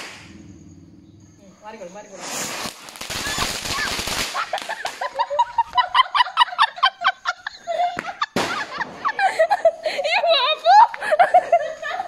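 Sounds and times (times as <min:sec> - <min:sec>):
firework hissing crackle: 0:00.0 - 0:00.4, 0:02.0 - 0:05.4
sharp crack: 0:00.0 - 0:00.4, 0:02.2 - 0:05.2, 0:08.0 - 0:09.1.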